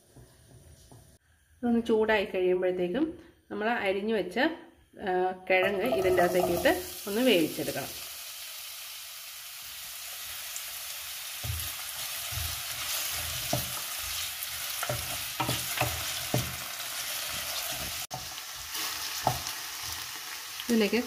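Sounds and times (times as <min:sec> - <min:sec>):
spatula scraping and knocking pan: 0:05.6 - 0:06.9, 0:11.4 - 0:18.3, 0:19.2 - 0:19.6
potatoes sizzling in oil: 0:05.6 - 0:21.0.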